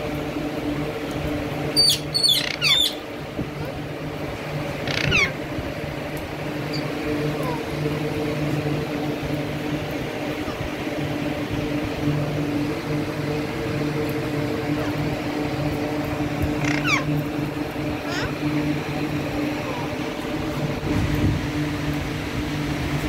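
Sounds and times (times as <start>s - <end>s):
steady low hum: 0.0s - 23.0s
faint short bird calls: 1.8s - 3.0s
parakeet squawking: 1.8s - 3.0s, 4.8s - 5.4s, 16.6s - 17.1s, 18.0s - 18.4s.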